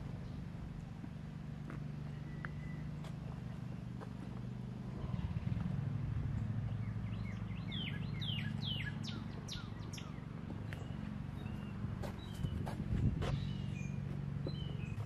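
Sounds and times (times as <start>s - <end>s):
steady low hum: 0.0s - 15.0s
songbird whistling: 7.1s - 10.2s.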